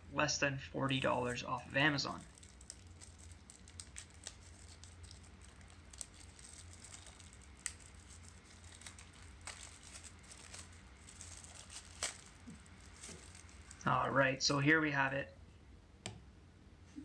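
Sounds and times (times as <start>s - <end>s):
plastic wrapper crinkling: 0.9s - 14.0s.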